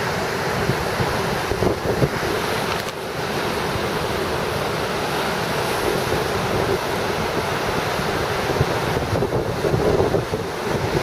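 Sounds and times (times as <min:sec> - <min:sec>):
wind buffeting microphone: 0:00.0 - 0:02.9, 0:05.5 - 0:11.0
surf washing over rocks: 0:00.0 - 0:11.0.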